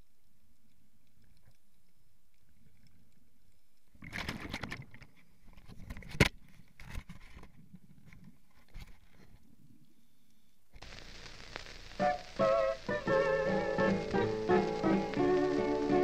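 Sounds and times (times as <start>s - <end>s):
water sloshing and splashing: 1.1s - 6.0s.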